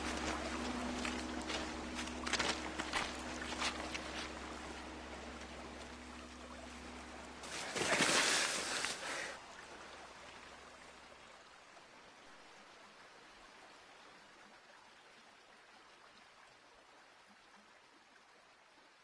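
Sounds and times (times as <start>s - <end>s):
footsteps on gravel: 0.0s - 6.0s
river water over stones: 0.0s - 19.0s.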